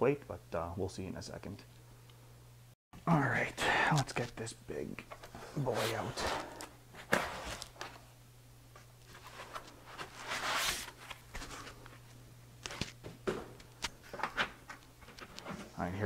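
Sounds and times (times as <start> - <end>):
cardboard and foam rustling: 9.1 - 11.8.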